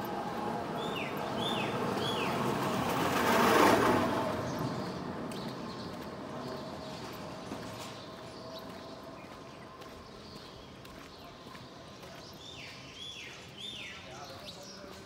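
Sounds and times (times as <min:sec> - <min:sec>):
vehicle passing by: 0:00.0 - 0:09.4
bird chirp: 0:00.8 - 0:02.6, 0:04.3 - 0:15.0.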